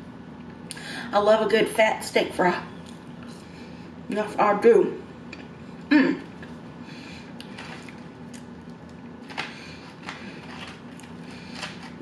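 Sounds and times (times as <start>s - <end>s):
chewing food: 7.3s - 12.0s.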